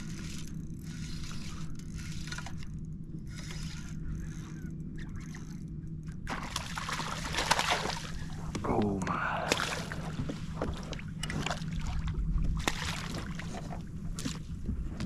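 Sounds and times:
water lapping and sloshing: 0:00.0 - 0:15.0.

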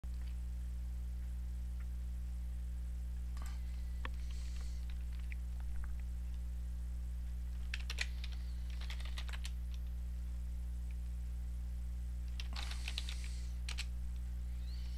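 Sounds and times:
low electrical hum: 0:00.0 - 0:14.9
keyboard keys clicking: 0:07.6 - 0:09.8, 0:12.3 - 0:13.9.

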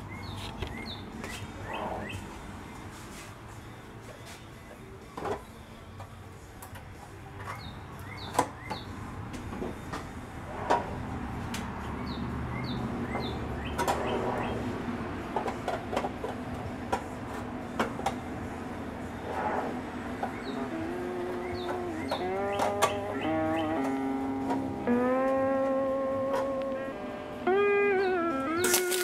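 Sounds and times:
birds chirping: 0:00.0 - 0:02.4, 0:07.4 - 0:09.0, 0:11.9 - 0:14.7, 0:20.1 - 0:29.0.

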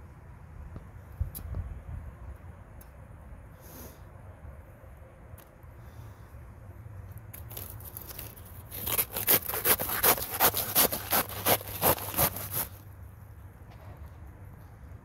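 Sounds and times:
hand saw cutting strokes: 0:07.5 - 0:12.8.

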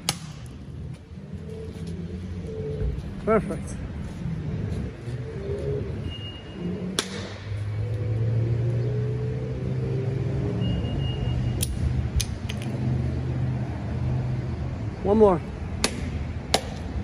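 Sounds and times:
low engine hum: 0:00.0 - 0:17.0
coconut knocked against concrete: 0:15.8 - 0:16.9.

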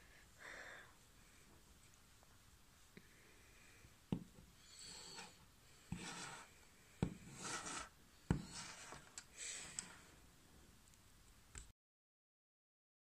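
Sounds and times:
toy scraping on wood: 0:04.8 - 0:10.0.

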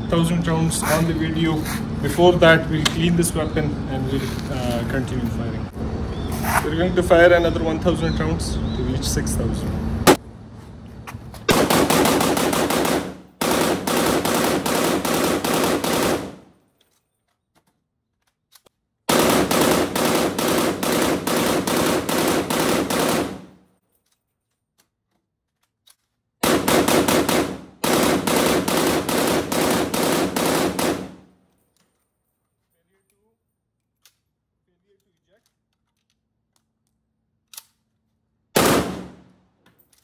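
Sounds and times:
automatic rifle bursts: 0:11.5 - 0:16.4, 0:19.1 - 0:23.5, 0:26.4 - 0:31.2, 0:38.6 - 0:39.2.

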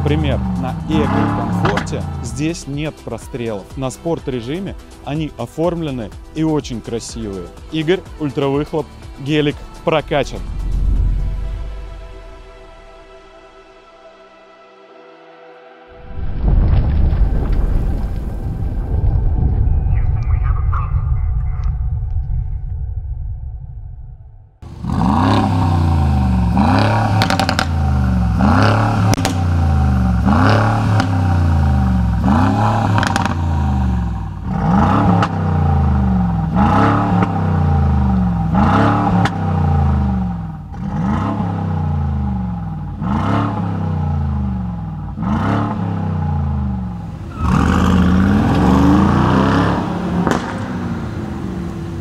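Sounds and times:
exhaust crack: 0:00.0 - 0:02.6, 0:16.3 - 0:52.0
car engine revving: 0:00.0 - 0:02.7, 0:24.6 - 0:52.0.

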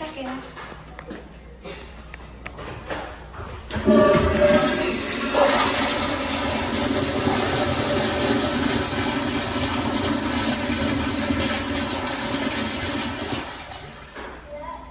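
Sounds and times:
flush valve hum: 0:03.7 - 0:14.2
toilet water rushing: 0:03.7 - 0:14.5.

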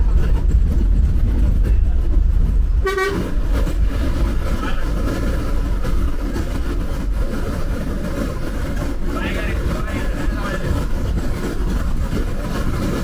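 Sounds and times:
bus engine rumbling: 0:00.0 - 0:13.0
horn toot: 0:02.8 - 0:03.4.

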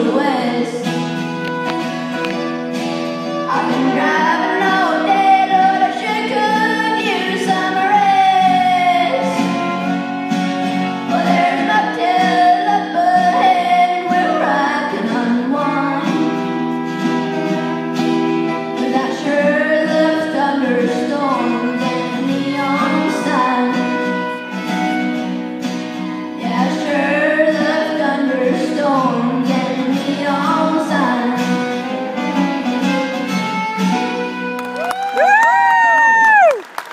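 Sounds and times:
person singing: 0:00.0 - 0:00.9, 0:03.3 - 0:09.8, 0:11.0 - 0:17.8, 0:18.6 - 0:24.6, 0:26.4 - 0:32.3
acoustic guitars playing: 0:00.0 - 0:36.4
fiddle: 0:00.0 - 0:36.6.

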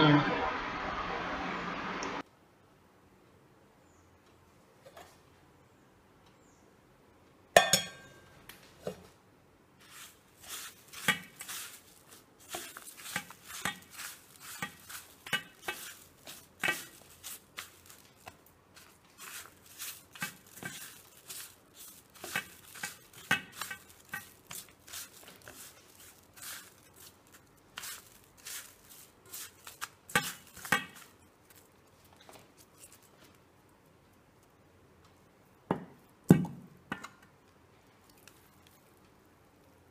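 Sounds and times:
metal kitchenware clinking: 0:07.6 - 0:08.2
hand mixing on steel plate: 0:09.8 - 0:33.6.

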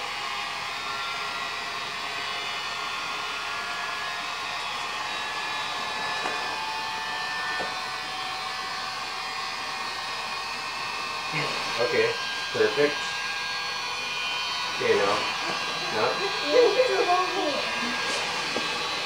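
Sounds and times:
electric air inflator running: 0:00.0 - 0:19.0.

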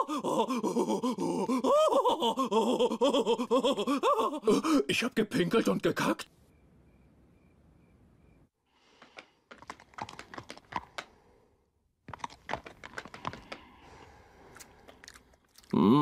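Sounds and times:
crickets chirping: 0:06.5 - 0:08.5.

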